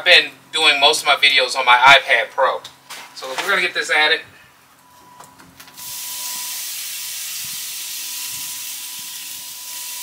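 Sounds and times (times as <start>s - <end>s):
meat sizzling on grill: 5.8s - 10.0s.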